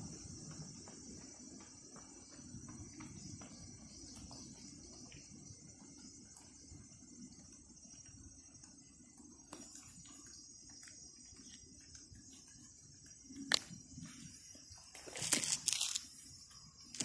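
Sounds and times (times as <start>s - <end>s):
crickets chirping: 0.0s - 17.0s
scuffing rustles: 14.2s - 16.3s.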